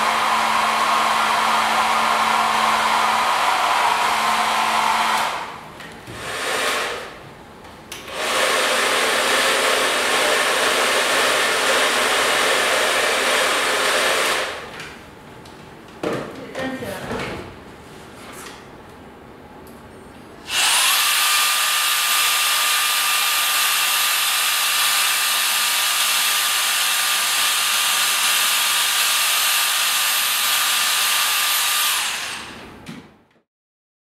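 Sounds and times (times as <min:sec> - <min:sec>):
hair dryer running: 0:00.0 - 0:07.2, 0:08.0 - 0:14.7, 0:20.5 - 0:32.7.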